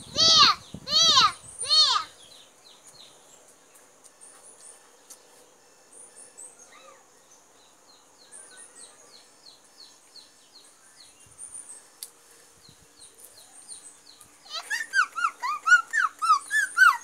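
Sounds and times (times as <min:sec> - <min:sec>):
birds chirping: 0:00.0 - 0:17.0.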